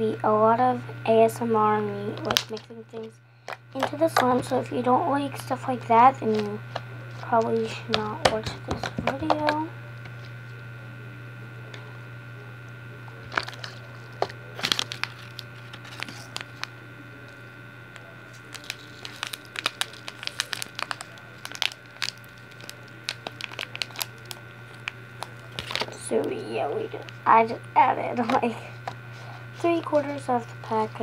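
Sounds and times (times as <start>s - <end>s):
low electrical hum: 0.0s - 31.0s
slime clicking and crackling: 2.2s - 4.4s, 18.5s - 26.0s.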